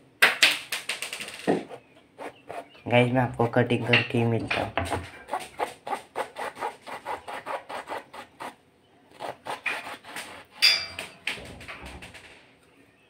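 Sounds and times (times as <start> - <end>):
knife sawing through mango: 1.6 - 2.7, 3.4 - 10.6.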